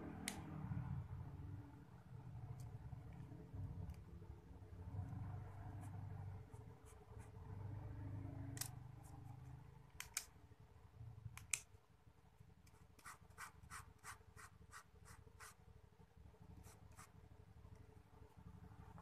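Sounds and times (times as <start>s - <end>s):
ballpoint pen clicks: 9.9s - 10.3s, 11.3s - 11.7s.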